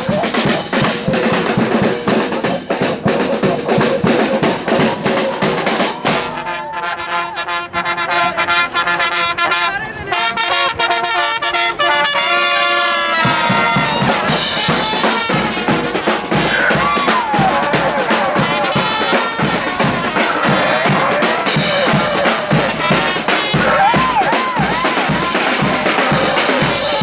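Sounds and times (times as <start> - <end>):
marching drums and cymbals: 0.0 - 9.2, 10.2 - 27.0
brass instruments holding a chord: 5.1 - 16.5, 17.7 - 27.0.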